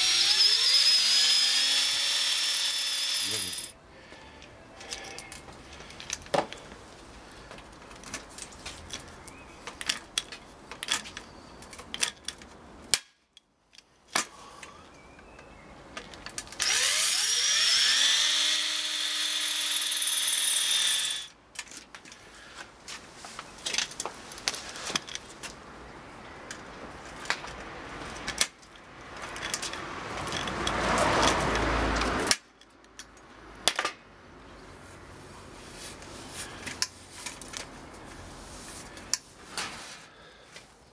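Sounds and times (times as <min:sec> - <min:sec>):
drill motor whining: 0:00.0 - 0:03.7, 0:16.6 - 0:21.3
rough drilling burst: 0:00.0 - 0:03.7, 0:16.6 - 0:21.3.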